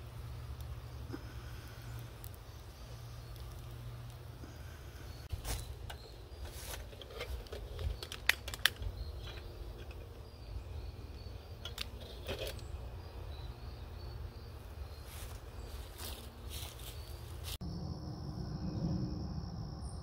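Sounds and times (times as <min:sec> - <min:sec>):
steady low rumble: 0:17.4 - 0:20.0.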